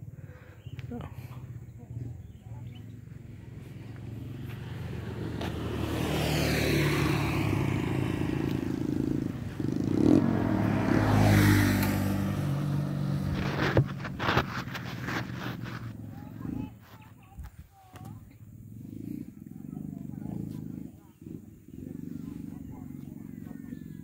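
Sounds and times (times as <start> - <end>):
vehicles passing: 0.0 - 24.0.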